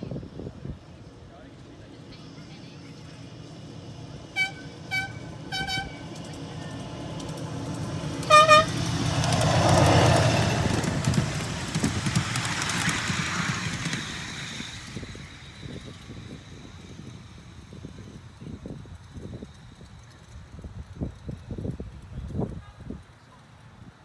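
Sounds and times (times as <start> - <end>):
train passing with low rumble: 0.0 - 24.0
miniature train horn toots: 4.4 - 6.2, 8.2 - 8.9
wheels clicking over rail joints: 4.5 - 23.9.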